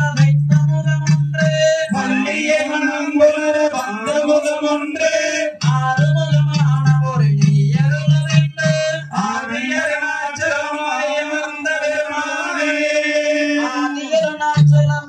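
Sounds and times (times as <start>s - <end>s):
rhythmic low beat: 0.0s - 1.8s, 5.6s - 9.2s
folk singing: 0.0s - 15.0s.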